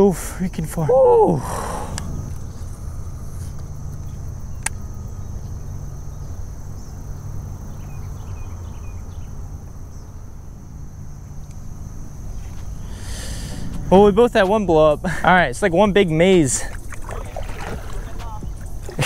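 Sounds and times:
crickets chirping: 0:00.0 - 0:19.0
low rumble: 0:00.9 - 0:06.8
sharp click: 0:04.6 - 0:04.8.

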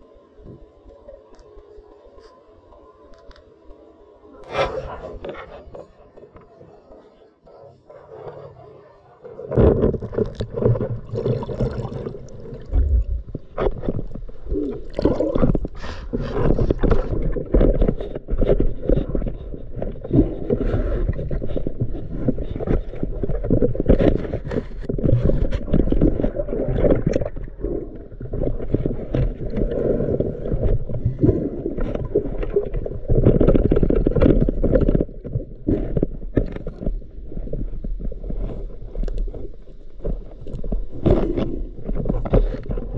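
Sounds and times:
underwater water rushing and bubbles: 0:08.2 - 0:42.9
knocks and scrapes: 0:09.5 - 0:42.9.

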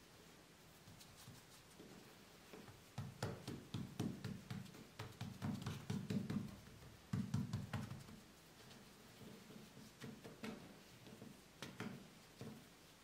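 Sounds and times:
fingertips thudding on dough: 0:02.6 - 0:08.2.

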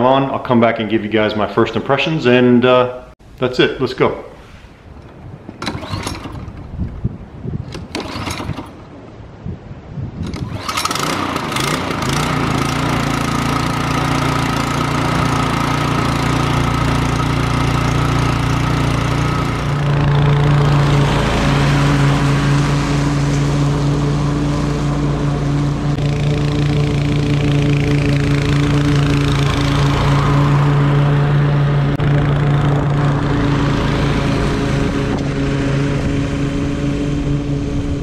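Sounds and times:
lawn mower engine running: 0:04.9 - 0:09.2, 0:10.2 - 0:38.0
recoil cord yanks: 0:05.0 - 0:07.0, 0:07.6 - 0:08.9, 0:10.2 - 0:20.0.

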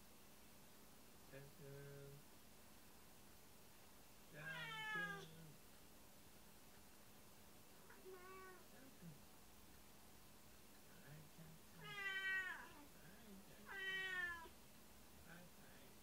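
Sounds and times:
cat meowing: 0:04.4 - 0:05.4, 0:07.9 - 0:08.7, 0:11.8 - 0:12.8, 0:13.6 - 0:14.5.

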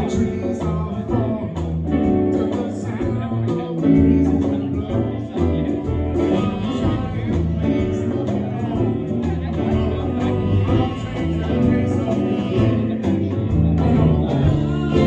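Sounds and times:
drums: 0:00.0 - 0:15.0
electric guitar: 0:00.0 - 0:15.0
man singing into a microphone: 0:00.0 - 0:15.0
upright bass: 0:00.0 - 0:15.0.

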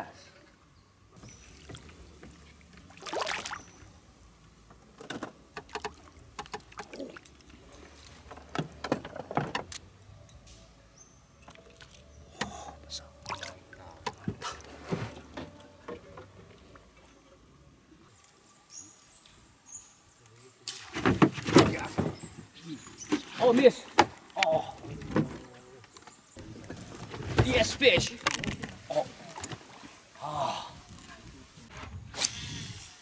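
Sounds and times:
fish splashing in water: 0:01.2 - 0:03.8.

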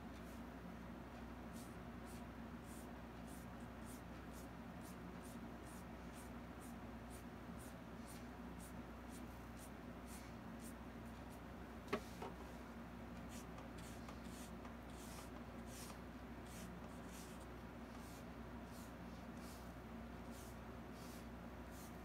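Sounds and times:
low room hum: 0:00.0 - 0:22.0
paintbrush brushing on canvas: 0:13.3 - 0:22.0.

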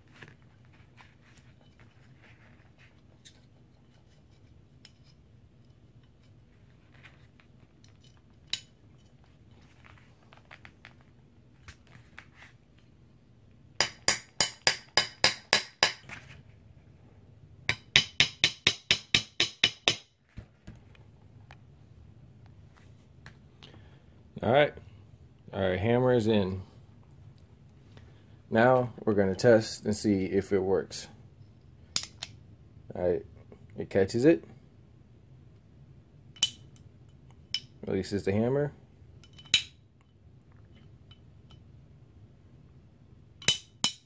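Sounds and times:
hammer tapping metal pin: 0:13.8 - 0:16.0, 0:17.7 - 0:20.1, 0:43.4 - 0:44.0.

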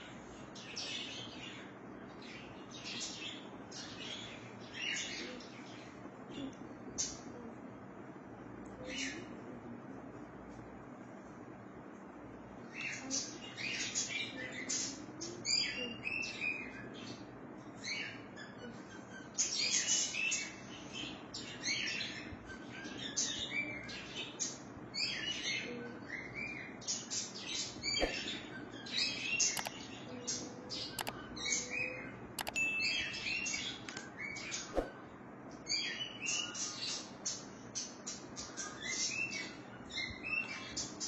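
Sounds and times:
small birds chirping: 0:00.0 - 0:41.0
sharp clicks: 0:29.5 - 0:29.8, 0:31.0 - 0:31.2, 0:32.4 - 0:32.6.

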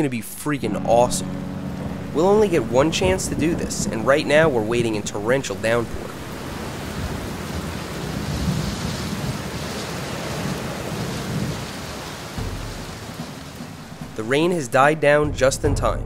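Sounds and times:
low rumble: 0:00.6 - 0:08.2, 0:12.4 - 0:16.0
torrential rain on water: 0:01.4 - 0:14.9.

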